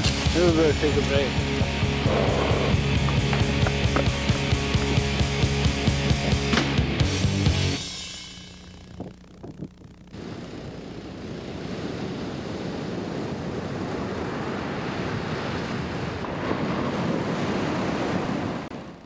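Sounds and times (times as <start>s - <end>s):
ocean surf breaking: 11.7s - 19.0s.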